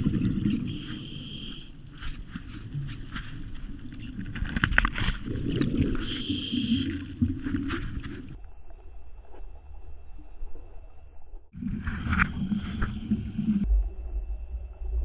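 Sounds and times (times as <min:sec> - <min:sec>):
diver inhaling through regulator: 0:00.7 - 0:01.8, 0:06.0 - 0:07.0
bubbling exhaled air: 0:05.1 - 0:08.4.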